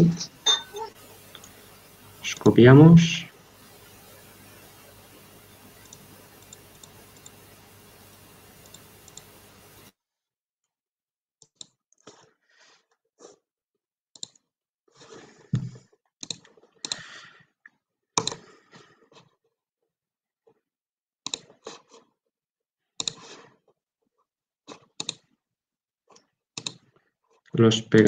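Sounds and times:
mouse and keyboard clicks: 0:16.2 - 0:17.0, 0:18.2 - 0:18.4, 0:23.0 - 0:23.2, 0:24.8 - 0:25.2, 0:26.6 - 0:26.8.

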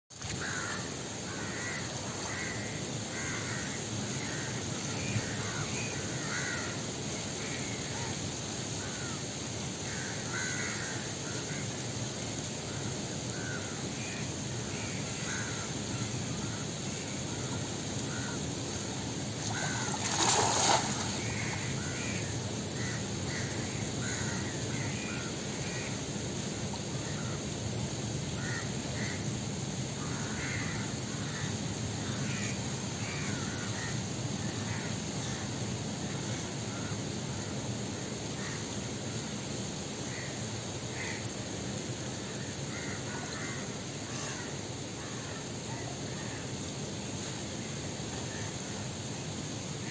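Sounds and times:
steady outdoor hiss: 0:00.1 - 0:49.9
steps through shallow water: 0:19.4 - 0:21.3
net splashing into water: 0:19.4 - 0:21.7.

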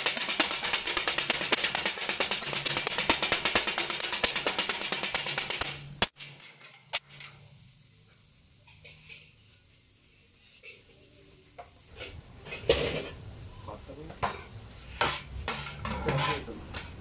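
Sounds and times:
metal blades clanging on griddle: 0:14.2 - 0:17.0.

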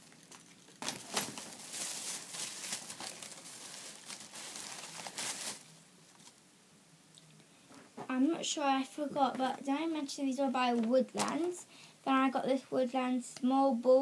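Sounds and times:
plastic bag rustling: 0:00.0 - 0:06.4, 0:10.8 - 0:11.6.

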